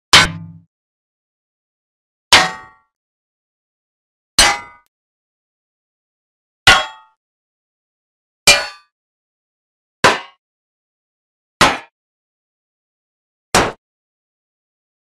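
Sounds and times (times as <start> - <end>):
hammer clanging on blade: 0.2 - 0.7.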